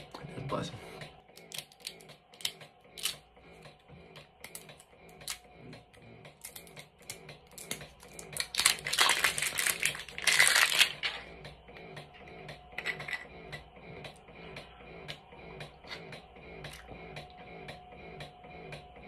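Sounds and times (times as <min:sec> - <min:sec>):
plastic wrapping crinkling: 0:08.2 - 0:11.1.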